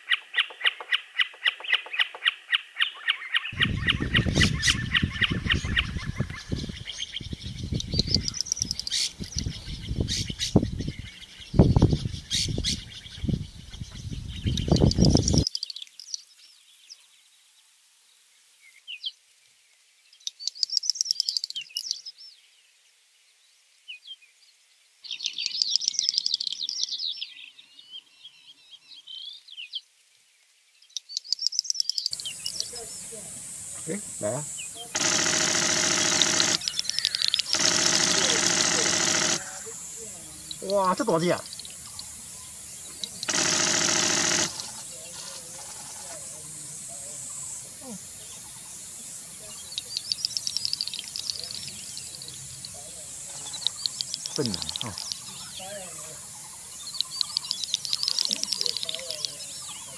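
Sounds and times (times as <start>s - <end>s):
birds chirping: 0.0s - 17.4s, 20.0s - 22.7s, 23.4s - 29.9s, 30.6s - 59.9s
low rumbling noise in gusts: 3.6s - 15.4s.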